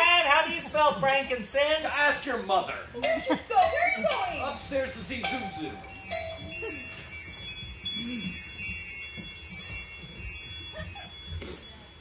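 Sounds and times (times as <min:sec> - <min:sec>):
high tinkling chimes: 0:03.6 - 0:12.0.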